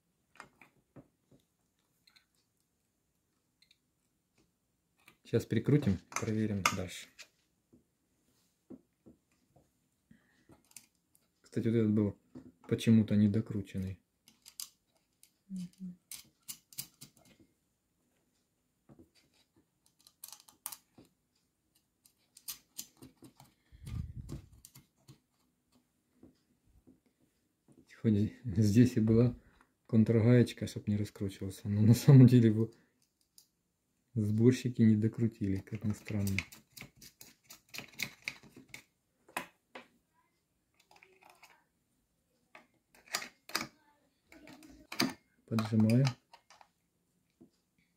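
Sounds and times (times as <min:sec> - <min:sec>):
faint clicks of small parts: 0:00.3 - 0:02.7, 0:03.5 - 0:07.3, 0:09.3 - 0:11.6, 0:13.5 - 0:17.5, 0:18.3 - 0:27.4, 0:32.6 - 0:33.6, 0:35.1 - 0:39.9, 0:40.7 - 0:41.7, 0:42.4 - 0:47.9.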